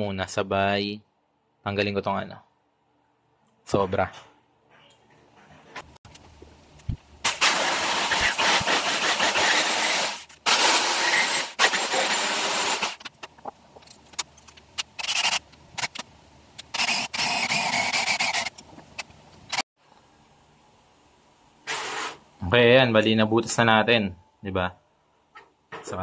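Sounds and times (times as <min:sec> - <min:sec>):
cordless drill boring wood: 0:08.2 - 0:13.0.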